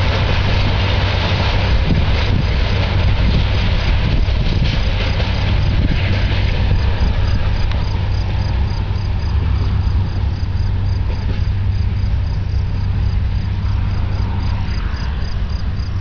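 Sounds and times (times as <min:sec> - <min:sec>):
low rumble: 0:00.0 - 0:16.0
crickets chirping: 0:06.7 - 0:16.0.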